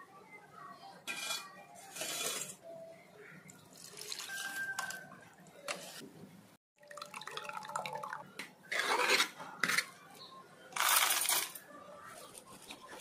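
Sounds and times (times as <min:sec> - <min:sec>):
spoon scraping steel bowl: 0:01.1 - 0:02.6, 0:08.7 - 0:09.9.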